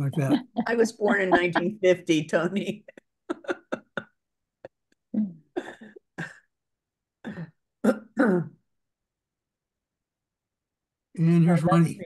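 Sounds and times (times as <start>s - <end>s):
person coughing: 5.6s - 6.5s, 7.2s - 8.6s
person clearing throat: 7.2s - 8.6s.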